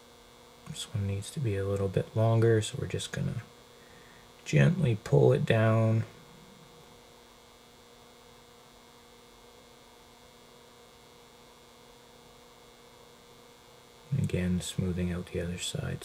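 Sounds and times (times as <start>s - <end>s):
faint mains hum: 0.0s - 16.0s.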